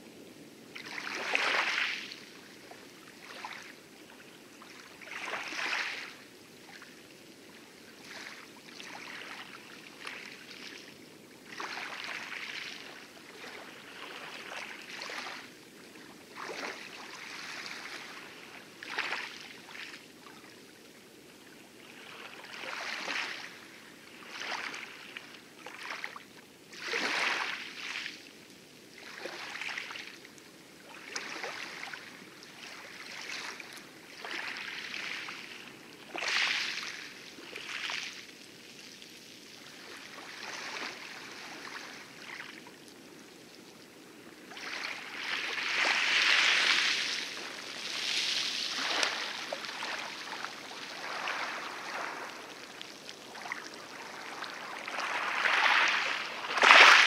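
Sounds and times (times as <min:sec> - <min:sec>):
wavelets lapping: 0:39.6 - 0:42.9, 0:44.4 - 0:57.0
oar strokes splashing water: 0:44.6 - 0:57.0.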